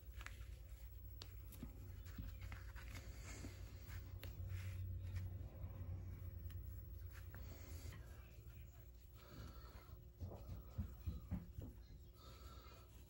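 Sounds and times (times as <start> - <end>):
rustling and scraping of twine: 0.0 - 5.7
low steady hum: 0.0 - 13.0.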